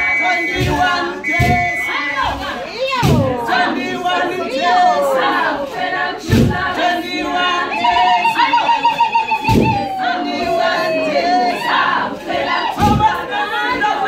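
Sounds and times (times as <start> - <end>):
women singing: 0.0 - 14.0
heavy thumps: 0.5 - 3.4, 6.2 - 6.8, 9.5 - 9.8.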